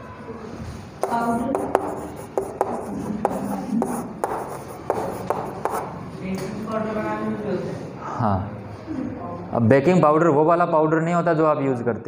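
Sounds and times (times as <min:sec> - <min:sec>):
chalk tapping and scratching: 0:01.0 - 0:06.0.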